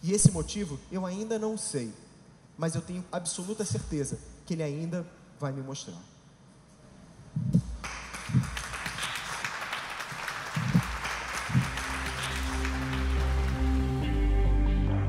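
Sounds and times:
audience applauding: 0:07.8 - 0:14.4
music with long held notes: 0:11.6 - 0:15.0.

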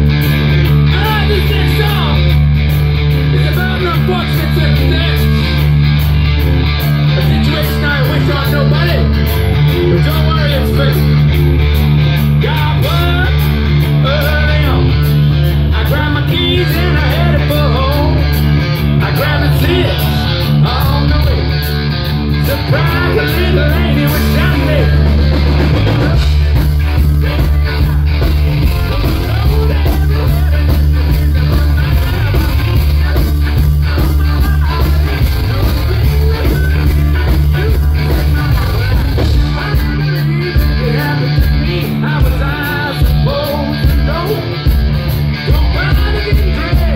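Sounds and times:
bass guitar: 0:00.0 - 0:46.9
drums: 0:00.0 - 0:46.9
electric guitars: 0:00.0 - 0:46.9
person singing: 0:12.2 - 0:21.7, 0:22.4 - 0:44.8, 0:45.4 - 0:46.9.

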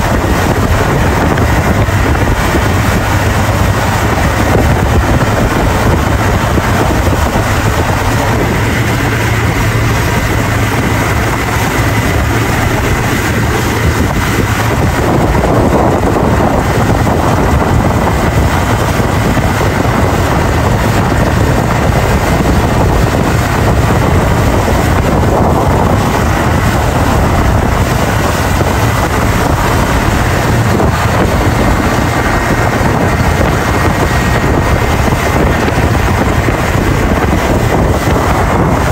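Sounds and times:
hiss of churning wake: 0:00.0 - 0:38.9
motorboat engine running: 0:00.0 - 0:38.9
wind buffeting microphone: 0:00.0 - 0:38.9.

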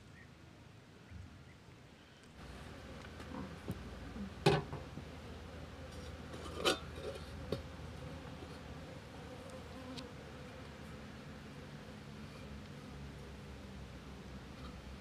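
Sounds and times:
faint insect buzzing: 0:02.4 - 0:12.9.

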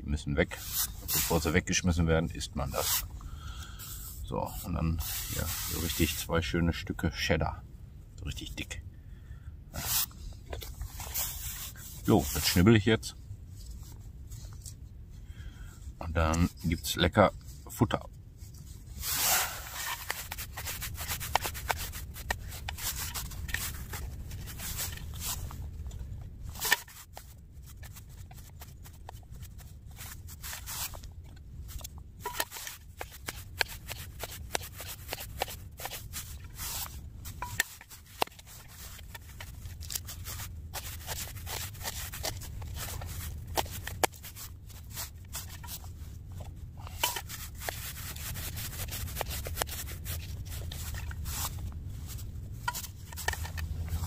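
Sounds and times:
steady low rumble: 0:17.3 - 0:33.6, 0:35.6 - 0:49.2, 0:49.9 - 0:54.0.

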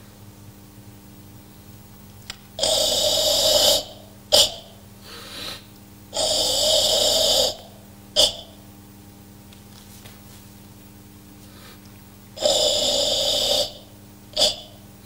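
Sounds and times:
forceful hissing breathing: 0:02.6 - 0:07.8, 0:11.4 - 0:14.7.

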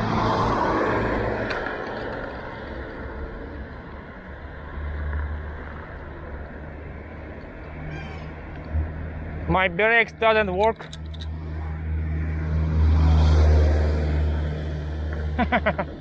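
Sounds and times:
motor vehicle passing: 0:00.0 - 0:09.9, 0:10.9 - 0:16.0
low rumble of engines: 0:00.0 - 0:16.0.

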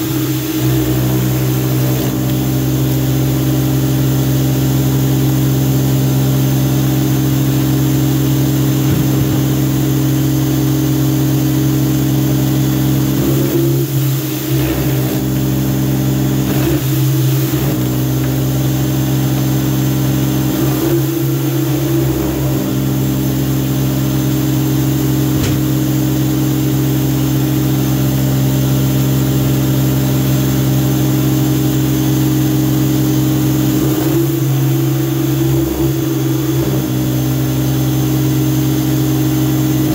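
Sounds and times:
water spraying: 0:00.0 - 0:05.5, 0:06.2 - 0:24.3
pressure washer motor humming: 0:00.0 - 0:39.9.

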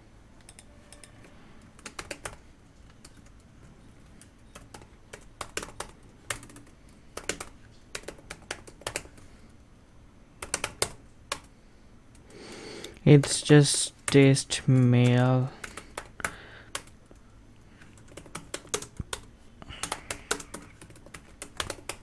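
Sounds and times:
computer keyboard typing: 0:00.4 - 0:09.3, 0:10.4 - 0:11.5, 0:14.8 - 0:17.2, 0:17.8 - 0:22.0.

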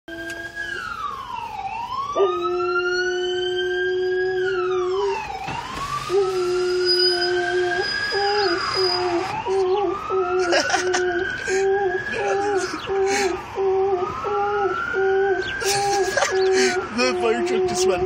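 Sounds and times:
emergency vehicle siren wailing: 0:00.1 - 0:18.0
dog howling: 0:02.2 - 0:05.2, 0:06.1 - 0:11.0.

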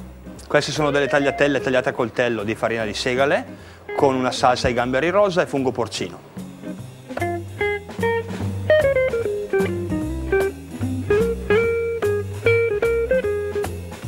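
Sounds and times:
plucked guitar melody: 0:00.8 - 0:02.4, 0:03.1 - 0:05.0, 0:06.6 - 0:14.0
bass line: 0:06.8 - 0:14.0.

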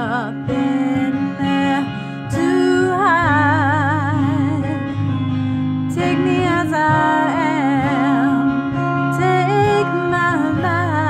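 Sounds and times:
woman singing with vibrato: 0:00.0 - 0:05.0, 0:05.9 - 0:11.0
acoustic guitar: 0:00.0 - 0:11.0.

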